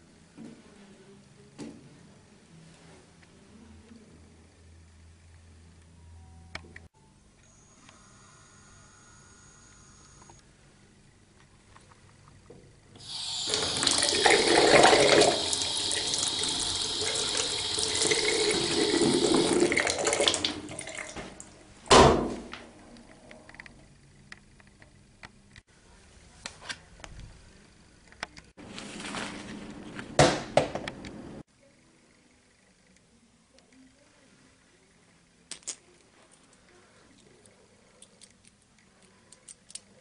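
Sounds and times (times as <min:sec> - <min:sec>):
water running: 0:13.0 - 0:21.6
loud knock: 0:21.9 - 0:22.5.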